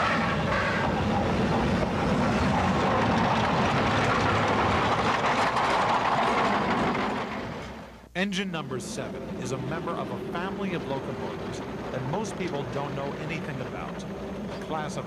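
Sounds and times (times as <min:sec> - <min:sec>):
steam locomotive exhaust beats: 0:00.0 - 0:15.0
steam rush and running gear: 0:08.6 - 0:15.0.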